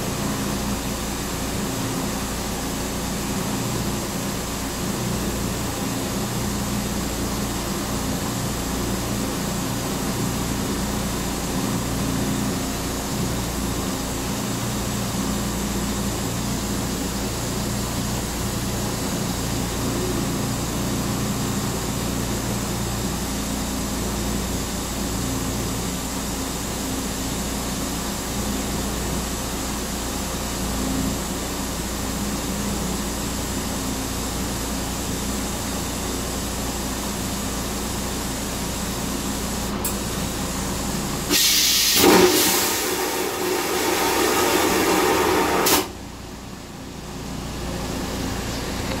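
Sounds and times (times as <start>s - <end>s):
toilet flushing hiss: 36.6s - 46.0s.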